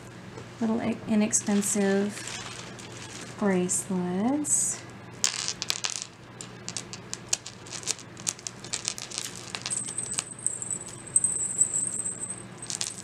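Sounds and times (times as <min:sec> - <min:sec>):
thin high whine: 0:01.4 - 0:04.1, 0:05.7 - 0:13.0
beads and charms clicking: 0:05.5 - 0:13.0.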